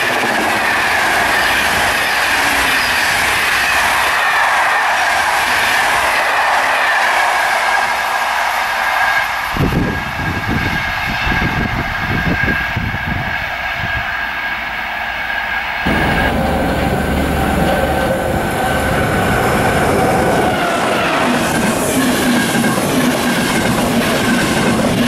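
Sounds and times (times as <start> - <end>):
train wheels rushing on rail: 0.0 - 25.0
wind buffeting microphone: 9.4 - 14.4, 15.8 - 25.0.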